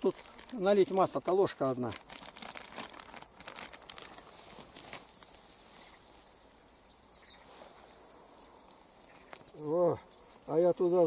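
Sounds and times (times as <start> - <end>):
plastic bag crinkling: 0.0 - 5.4
faint outdoor background: 0.0 - 11.0.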